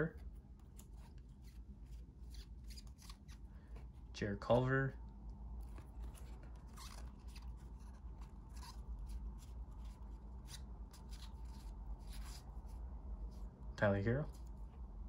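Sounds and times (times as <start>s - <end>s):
trading cards sliding and rubbing: 0.1s - 4.1s, 5.6s - 13.6s.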